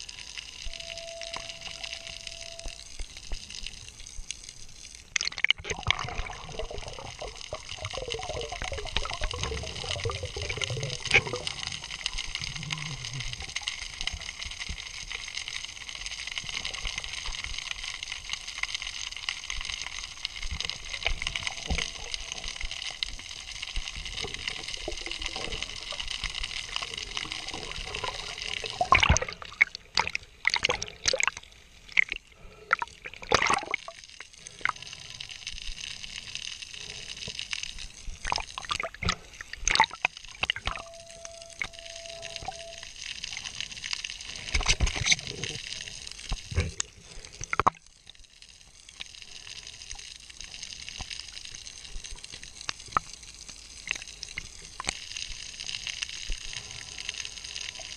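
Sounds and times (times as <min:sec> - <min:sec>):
faint steady tones: 0:00.0 - 0:05.2, 0:06.1 - 0:32.8, 0:39.0 - 0:51.0
water splashing and sloshing: 0:00.7 - 0:17.6, 0:20.0 - 0:48.2.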